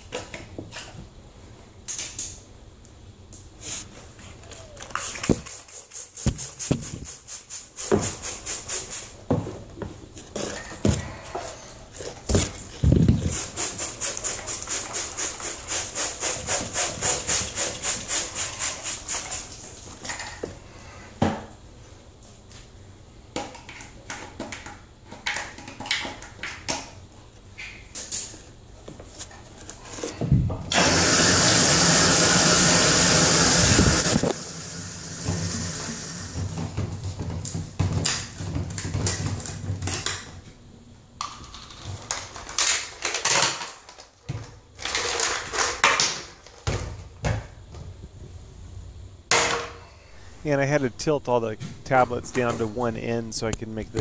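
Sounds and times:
faucet running water: 30.8 - 36.4.

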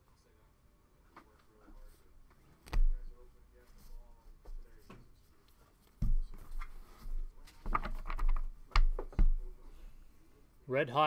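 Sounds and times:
clicks and knocks on desk: 6.0 - 9.5.

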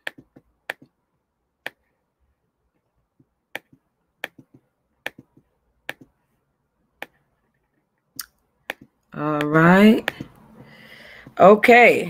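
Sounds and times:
computer mouse and key clicks: 0.0 - 1.0, 3.5 - 6.2, 7.0 - 10.4.

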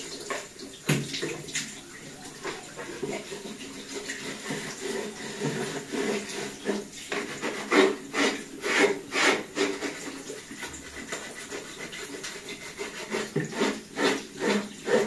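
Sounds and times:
running tap water: 0.0 - 15.0
brush scrubbing plastic part: 2.3 - 15.0.

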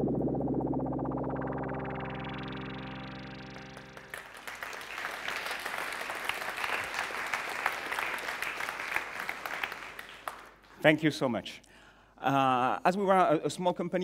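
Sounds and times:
held synthesizer chord: 0.0 - 4.4
large audience applauding: 3.5 - 10.8.

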